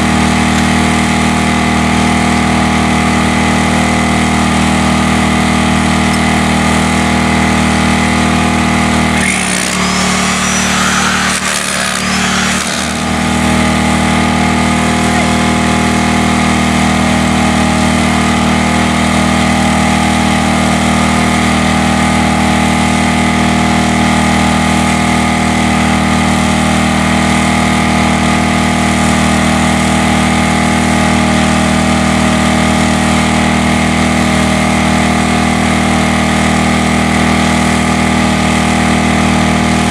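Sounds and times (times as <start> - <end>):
small engine running: 8.6 - 22.9.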